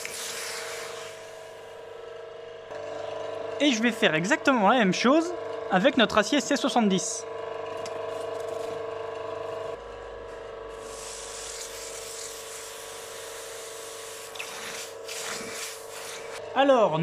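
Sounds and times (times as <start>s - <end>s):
forge blower humming: 0.0s - 17.0s
hot steel sizzling in water: 10.8s - 16.4s.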